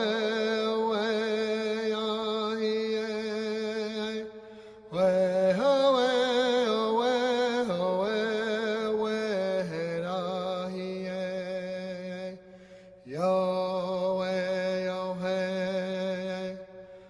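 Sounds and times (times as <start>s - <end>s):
solo voice singing chant-like melody: 0.0s - 17.0s.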